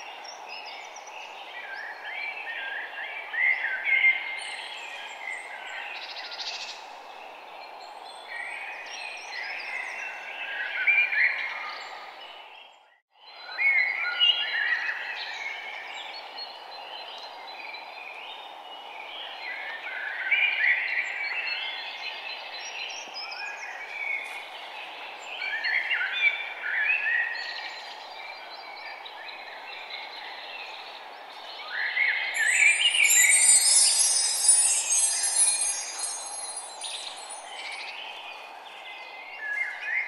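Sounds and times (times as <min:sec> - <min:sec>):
birds chirping and singing: 0:32.4 - 0:38.0
steady background hiss: 0:32.4 - 0:38.5.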